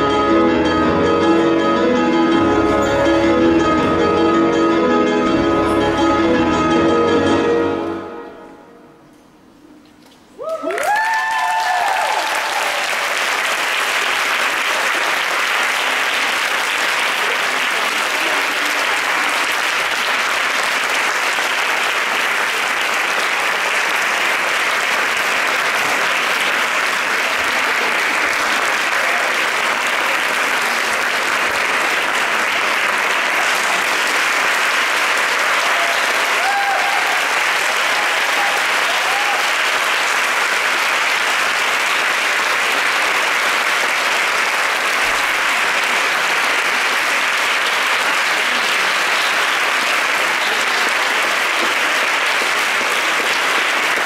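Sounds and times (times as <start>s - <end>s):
whooping shouts: 10.4s - 12.9s, 35.6s - 37.3s, 37.9s - 39.6s
audience applauding: 10.4s - 54.0s.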